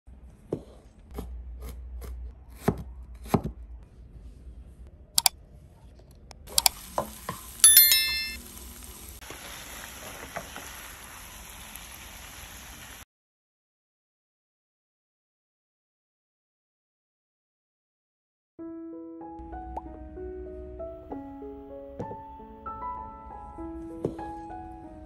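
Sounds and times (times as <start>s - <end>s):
knife cutting on wooden board: 0.5s - 3.5s
frying pan sizzling: 6.5s - 13.0s
short ringing chime: 7.6s - 8.4s.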